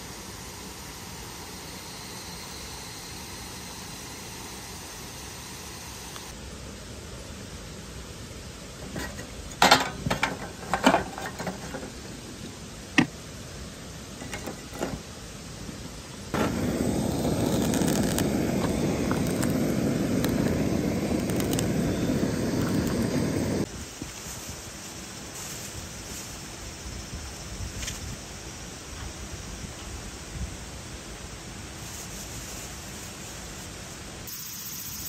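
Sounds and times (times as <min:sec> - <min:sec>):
charcoal clattering into metal firebox: 0:08.9 - 0:12.1
gas torch rushing: 0:16.3 - 0:23.7.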